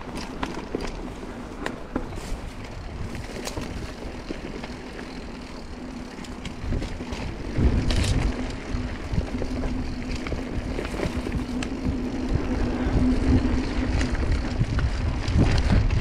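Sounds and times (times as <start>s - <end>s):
bike rattling clicks: 0.0s - 16.0s
bike tyres humming on dirt: 0.0s - 16.0s
wind on microphone: 1.4s - 4.5s, 6.4s - 16.0s.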